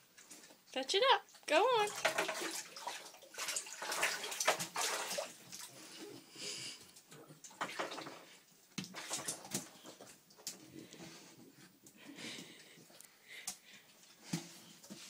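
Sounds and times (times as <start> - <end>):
dog splashing water in bathtub: 1.3 - 6.2, 7.0 - 10.8.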